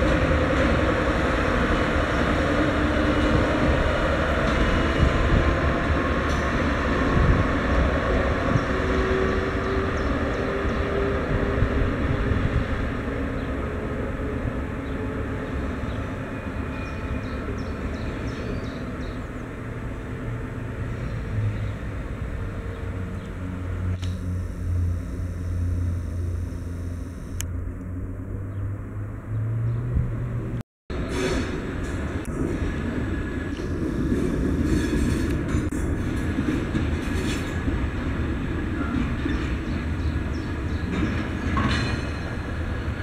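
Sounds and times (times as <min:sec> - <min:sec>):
diesel locomotive engine rumbling: 0:00.0 - 0:28.5, 0:30.0 - 0:43.0.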